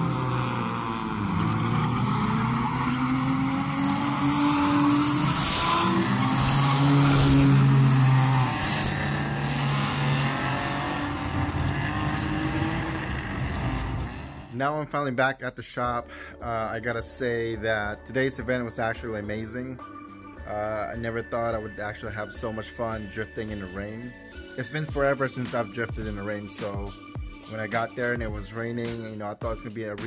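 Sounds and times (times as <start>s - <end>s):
car engines revving: 0.0s - 14.6s.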